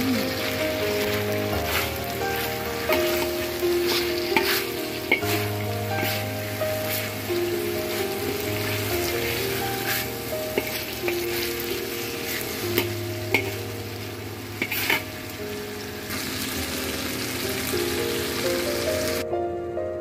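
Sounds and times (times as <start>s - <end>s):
fish sizzling in hot oil: 0.0s - 19.2s
vegetables stir-frying: 0.0s - 19.2s
soft background music: 0.0s - 20.0s
metal spatula scraping pan: 0.3s - 13.7s, 14.6s - 15.2s.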